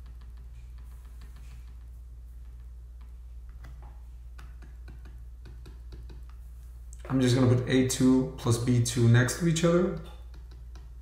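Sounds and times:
computer mouse clicks and taps: 0.0s - 6.4s
low electrical hum: 0.0s - 11.0s.

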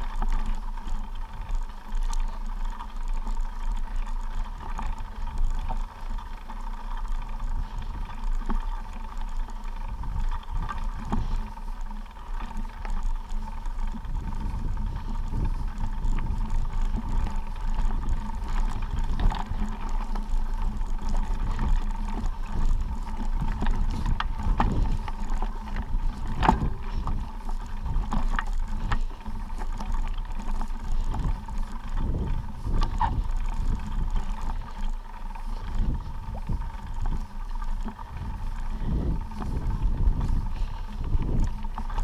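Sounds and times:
footsteps on a trail: 0.0s - 42.0s
wind buffeting microphone: 9.4s - 42.0s.

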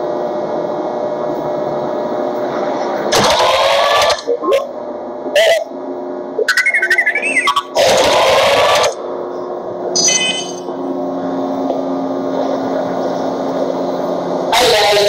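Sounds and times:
low electronic hum: 0.0s - 15.0s
warbling electronic beeps: 6.4s - 7.8s, 9.9s - 10.8s.

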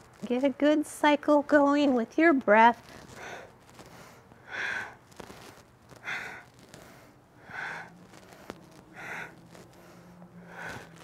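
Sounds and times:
woman breathing forcefully: 2.9s - 11.0s.

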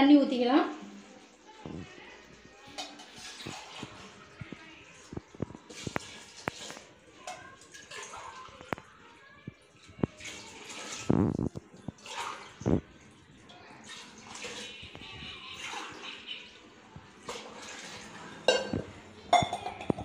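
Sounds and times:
water splashing into pot: 0.8s - 20.0s
metal vessels knocking: 18.4s - 20.0s.

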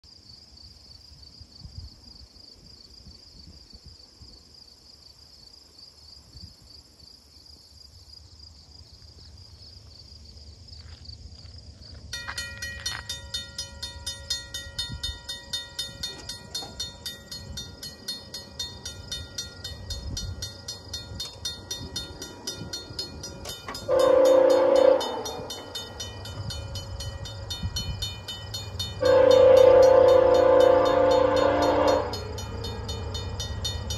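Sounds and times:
crossing signal bell ringing: 12.1s - 33.9s
locomotive horn blasts: 23.6s - 26.0s, 28.9s - 33.1s.

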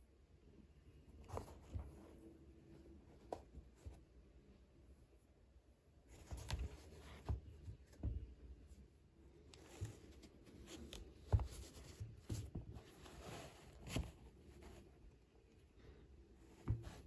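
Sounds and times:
shoe rustling and scuffing: 1.2s - 2.2s, 9.6s - 15.0s, 16.5s - 17.0s.

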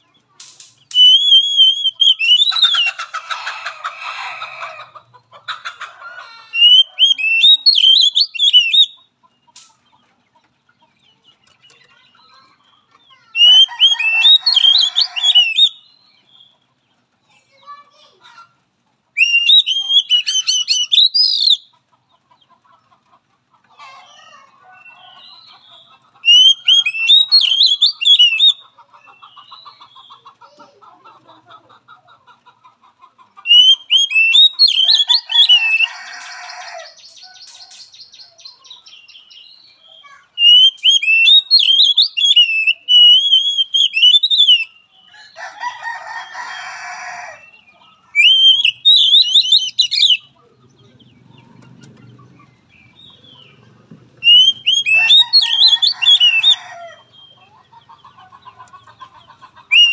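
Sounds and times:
bird whistled song phrases: 0.9s - 2.9s, 6.6s - 9.0s, 13.4s - 16.0s, 19.2s - 21.7s, 26.2s - 28.6s, 33.5s - 35.9s, 40.4s - 44.8s, 48.1s - 50.3s, 54.2s - 56.6s, 59.6s - 59.9s.

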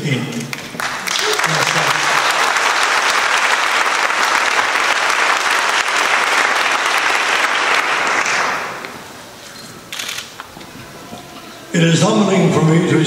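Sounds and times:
audience applauding: 0.5s - 9.2s.

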